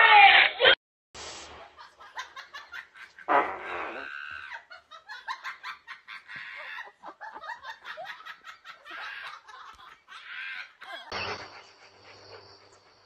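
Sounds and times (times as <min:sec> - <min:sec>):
person laughing: 0:04.4 - 0:11.2.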